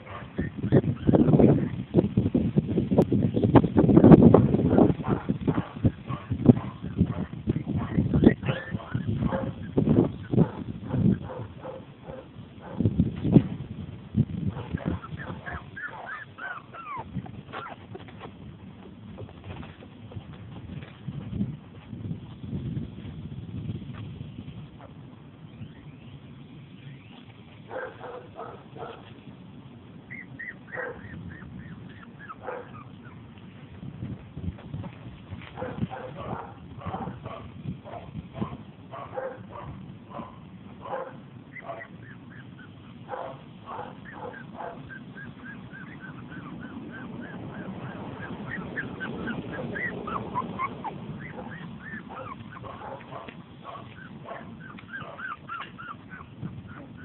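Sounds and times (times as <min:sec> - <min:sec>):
puppies whimpering and yipping: 0:00.0 - 0:01.9, 0:05.7 - 0:12.2, 0:14.7 - 0:18.3, 0:24.7 - 0:29.1, 0:30.0 - 0:33.6, 0:41.4 - 0:57.0.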